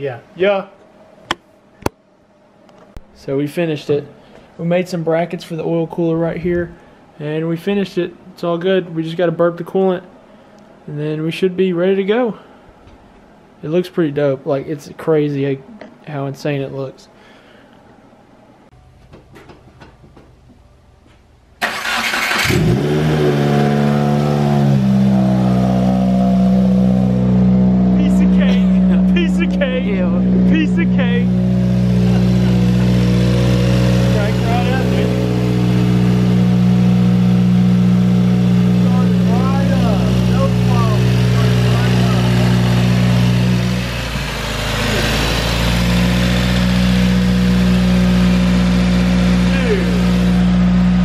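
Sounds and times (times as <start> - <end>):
car starter cranking: 21.6 - 23.1
car engine idling: 21.7 - 51.0.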